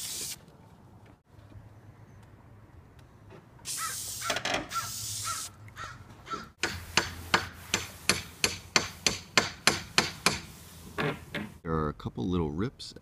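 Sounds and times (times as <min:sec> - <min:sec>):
aerosol can hissing: 0:00.0 - 0:00.4.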